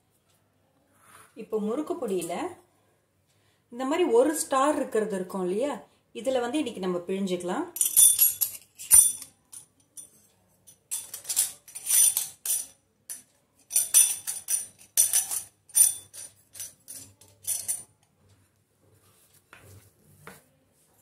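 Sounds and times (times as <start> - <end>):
metal parts clinking and jingling: 7.8 - 17.9.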